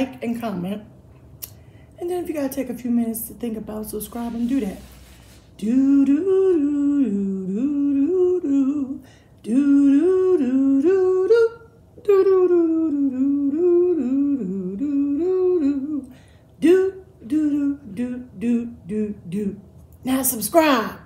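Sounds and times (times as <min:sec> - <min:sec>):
choppy vocal sounds: 0:03.0 - 0:20.9
woman humming: 0:05.6 - 0:19.6.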